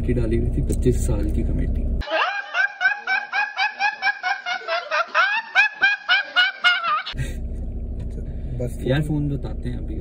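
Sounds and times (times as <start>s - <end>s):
boy snickering laugh: 2.0s - 7.2s.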